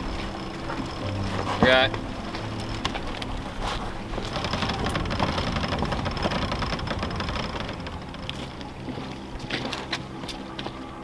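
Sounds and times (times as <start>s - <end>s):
winch ratcheting clicks: 4.2s - 8.8s.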